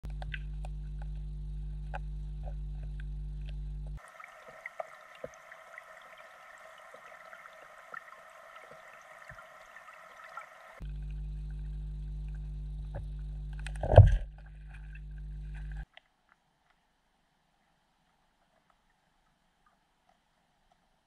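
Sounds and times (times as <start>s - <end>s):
low underwater hum: 0.0s - 15.9s
small clicks: 10.8s - 16.8s.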